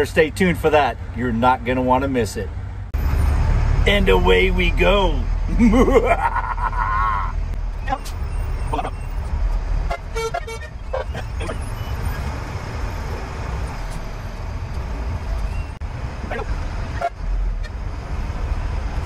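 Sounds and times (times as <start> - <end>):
diesel truck engine running: 0.0 - 19.0
horn toots: 9.8 - 12.3.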